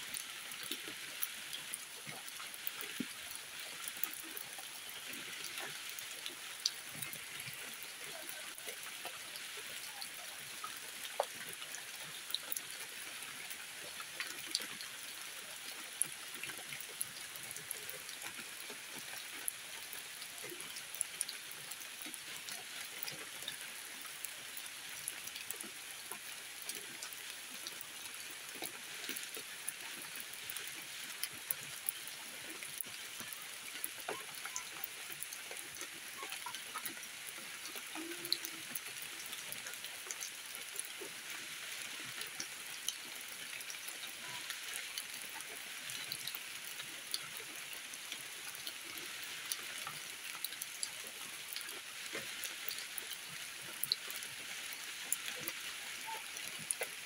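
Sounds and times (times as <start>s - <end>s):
rain on leaves: 0.0s - 57.0s
water drips ticking: 0.0s - 57.0s.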